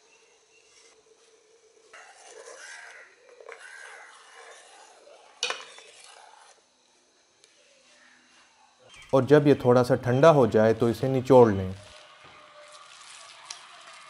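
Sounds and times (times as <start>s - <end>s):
metal spoon stirring in pot: 0.5s - 6.6s, 11.8s - 14.0s.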